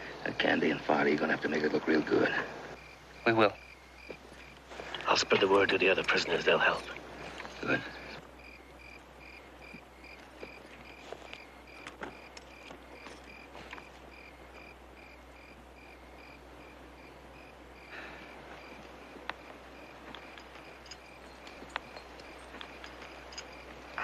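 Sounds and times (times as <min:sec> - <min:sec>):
cricket chirping: 0:00.0 - 0:24.0
faint clicks and rustles: 0:04.0 - 0:08.4, 0:09.6 - 0:14.7, 0:18.0 - 0:24.0.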